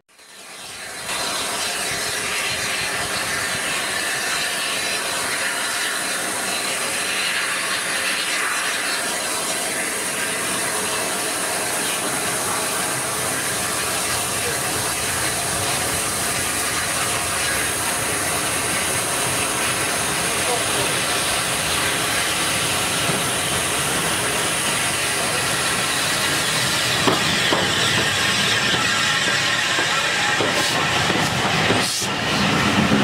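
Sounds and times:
approaching steam engine rumble: 0:00.1 - 0:33.0
steam locomotive hissing: 0:00.1 - 0:33.0.

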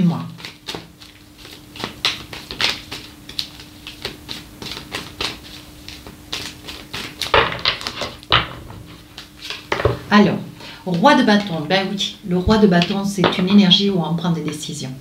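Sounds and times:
cards being shuffled: 0:00.4 - 0:10.0.

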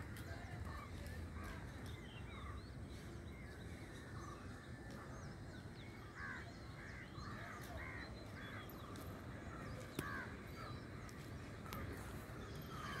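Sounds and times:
small birds chirping: 0:00.0 - 0:13.0
crows cawing: 0:12.7 - 0:13.0.

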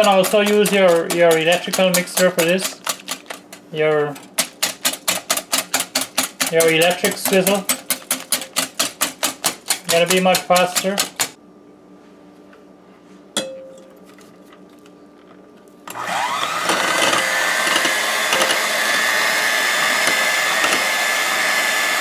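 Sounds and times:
beaters whipping eggs in glass bowl: 0:00.0 - 0:03.6, 0:04.2 - 0:11.4, 0:15.9 - 0:22.0
electric hand mixer whining: 0:15.9 - 0:22.0.

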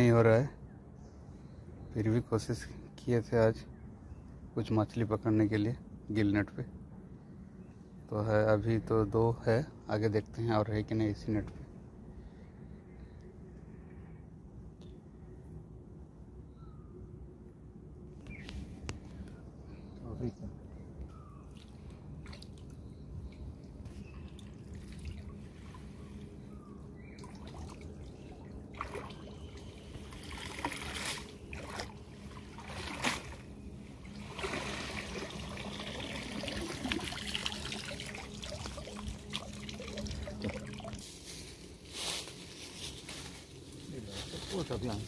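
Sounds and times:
river water splashing: 0:21.5 - 0:22.8, 0:24.3 - 0:26.0, 0:27.2 - 0:41.0.

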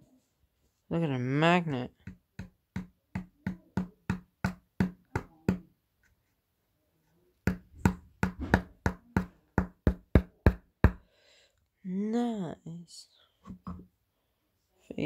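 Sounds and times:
rapid knocks on hard object: 0:02.0 - 0:05.7, 0:07.5 - 0:11.0.

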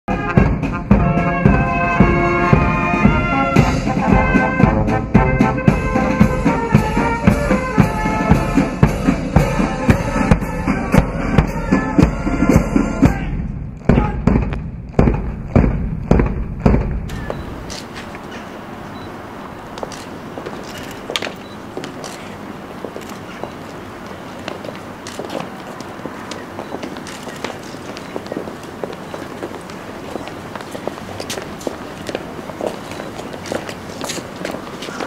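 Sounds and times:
steady drum beat: 0:00.1 - 0:17.6
marching band brass: 0:00.1 - 0:35.0.

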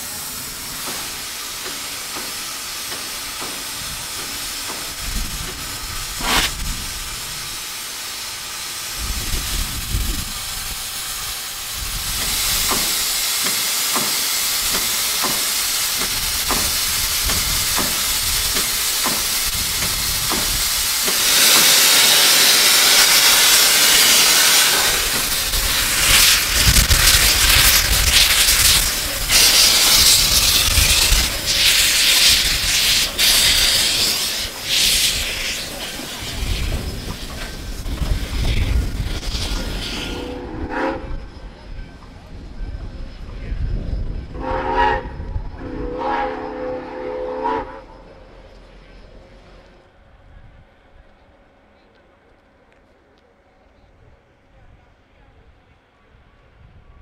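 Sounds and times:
loud blast of steam: 0:00.0 - 0:41.4, 0:44.3 - 0:48.1
locomotive hissing steam: 0:00.0 - 0:52.3.

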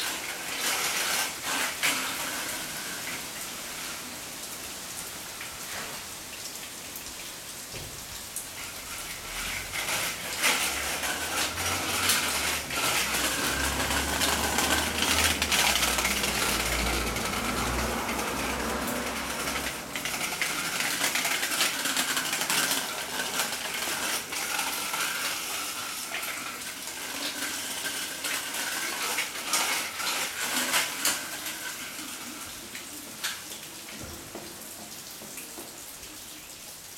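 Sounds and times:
bicycle rattling and clicking: 0:00.0 - 0:03.4, 0:08.6 - 0:32.7
tyres hissing on paving: 0:00.0 - 0:36.4.

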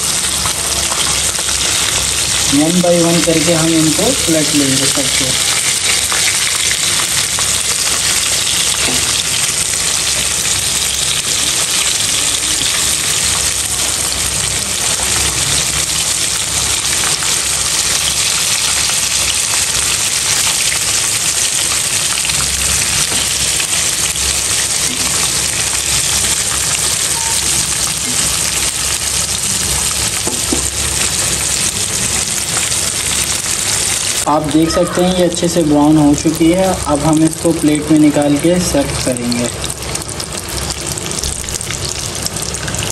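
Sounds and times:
chicken frying in hot oil: 0:00.0 - 0:42.9.

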